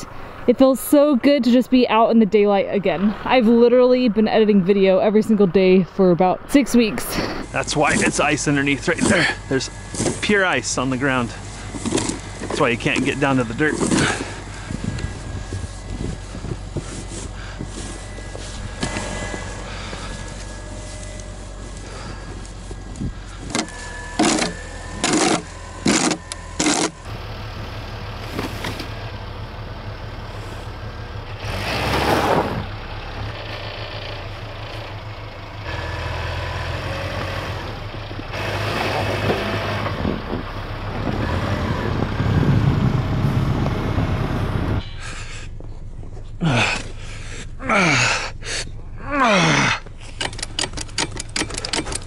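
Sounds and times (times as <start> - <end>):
car engine running: 6.8 - 52.0
metal shovel scraping snow: 7.1 - 27.0, 31.4 - 32.7.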